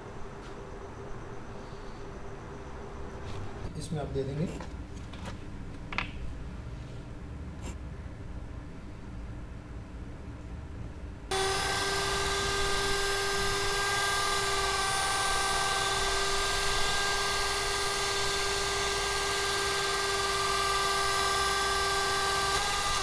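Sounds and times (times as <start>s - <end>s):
immersion blender motor whine: 11.3s - 23.0s.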